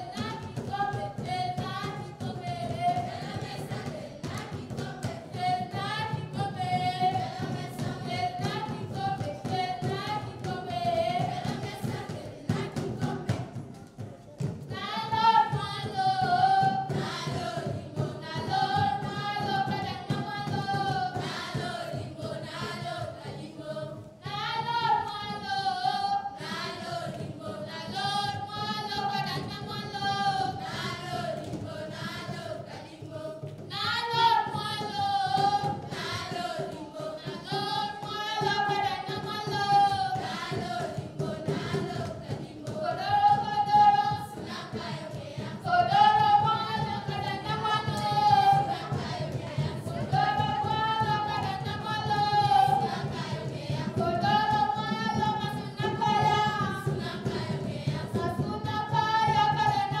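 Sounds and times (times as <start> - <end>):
girls choir singing: 0.0 - 13.7, 14.7 - 60.0.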